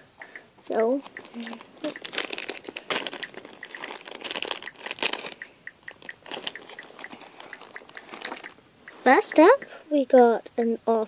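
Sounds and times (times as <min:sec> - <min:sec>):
plastic bag crinkling: 0:01.0 - 0:08.6.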